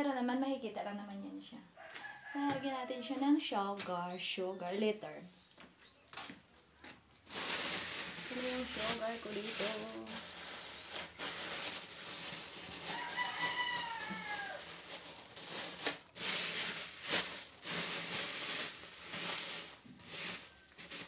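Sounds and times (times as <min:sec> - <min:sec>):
rooster crowing: 0:01.8 - 0:03.1, 0:12.8 - 0:14.8.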